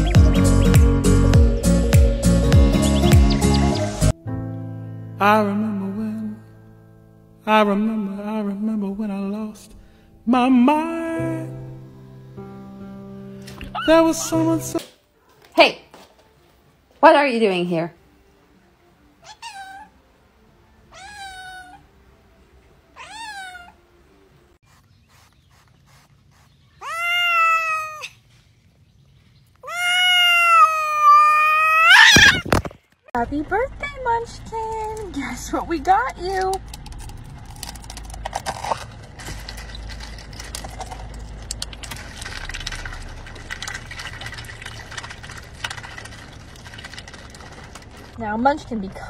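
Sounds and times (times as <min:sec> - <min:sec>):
cat meowing: 0:19.2 - 0:20.0, 0:20.9 - 0:21.9, 0:23.0 - 0:23.8, 0:26.8 - 0:28.1, 0:29.6 - 0:32.4
duck bill dabbling in water cup: 0:38.6 - 0:48.2.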